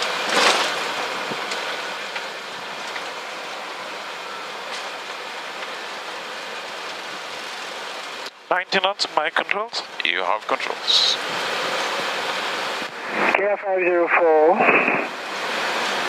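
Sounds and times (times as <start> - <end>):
jet engine and wheels rumbling: 0.0 - 16.0.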